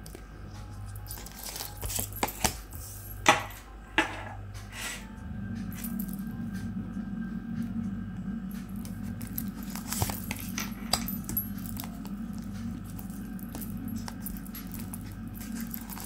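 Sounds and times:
steady low hum: 0:00.0 - 0:16.0
cards clicking and rustling: 0:01.2 - 0:02.7, 0:09.7 - 0:12.2.

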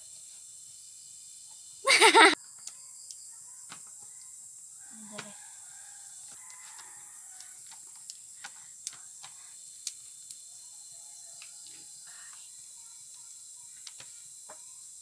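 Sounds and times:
steady background hiss: 0:00.0 - 0:03.3
faint chicken calls: 0:03.5 - 0:07.8.

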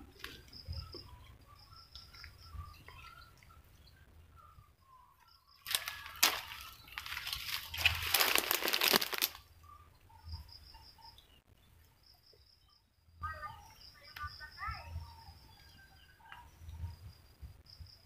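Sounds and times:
soil crunching as dug by hand: 0:05.6 - 0:09.4.

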